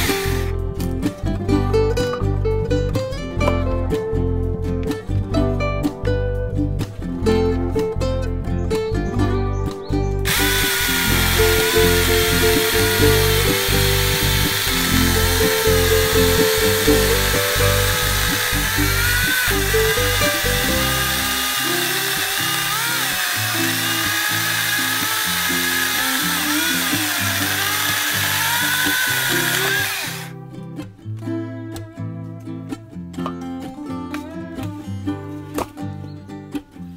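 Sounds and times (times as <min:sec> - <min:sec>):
electric chainsaw cutting log: 0:00.0 - 0:00.9, 0:10.2 - 0:30.4
background music: 0:00.0 - 0:36.9.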